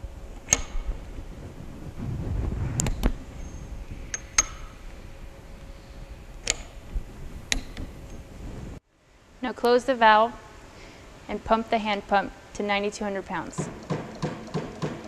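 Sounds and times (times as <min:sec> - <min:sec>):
low handling rumble: 0:00.0 - 0:08.8
torque wrench clicks: 0:00.4 - 0:00.8.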